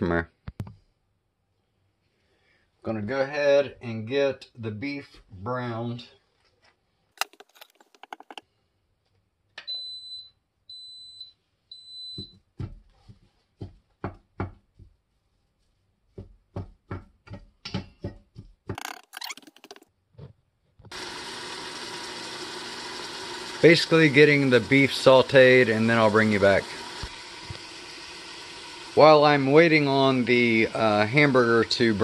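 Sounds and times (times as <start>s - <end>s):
meat sizzling in pot: 20.9s - 32.0s.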